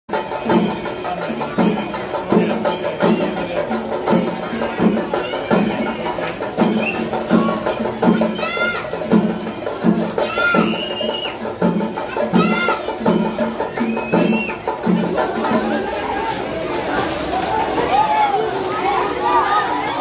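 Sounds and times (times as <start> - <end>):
percussion festival music: 0.1 - 20.0.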